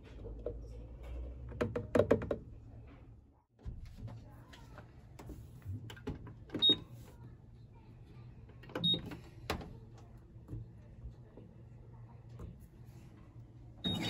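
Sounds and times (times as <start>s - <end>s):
washing machine beeping: 6.5s - 7.0s, 8.7s - 9.3s, 13.8s - 14.0s.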